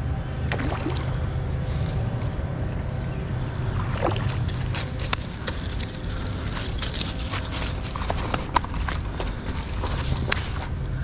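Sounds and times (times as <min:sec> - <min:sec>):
fish splashing in water: 0:00.5 - 0:01.2, 0:03.7 - 0:04.8.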